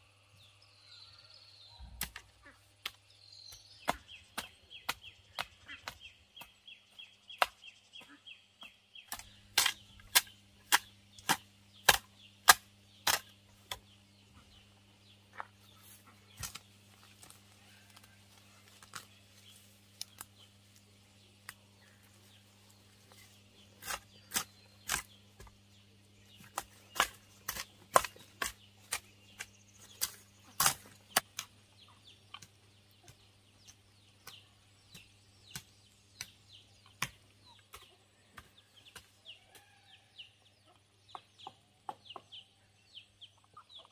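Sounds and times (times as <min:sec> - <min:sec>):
steady low hum: 0:07.8 - 0:37.9.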